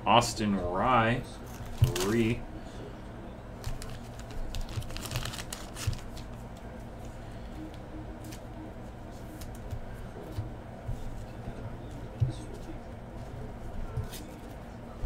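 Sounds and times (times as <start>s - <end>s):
steady low hum: 0.0s - 15.0s
trading cards clicking and tapping: 1.5s - 2.3s, 3.6s - 6.7s.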